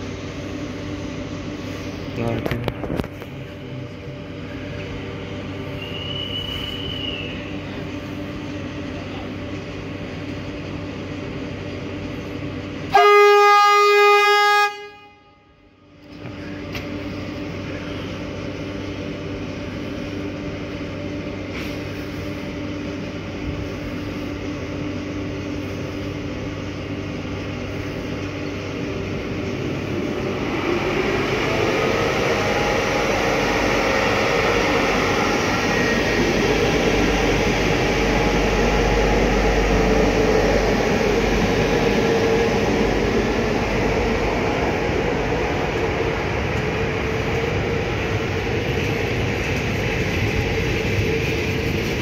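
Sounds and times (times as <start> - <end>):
locomotive humming: 0.0 - 52.0
rising whine of train: 0.0 - 52.0
locomotive horn blast: 12.9 - 15.6.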